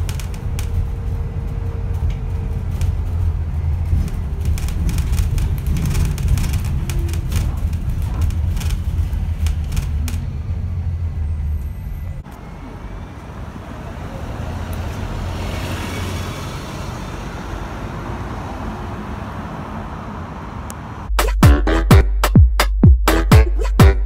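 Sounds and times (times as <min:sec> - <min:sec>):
bus driving past: 0:00.0 - 0:21.1
bus interior hum: 0:00.0 - 0:22.1
music with a beat: 0:21.1 - 0:24.0.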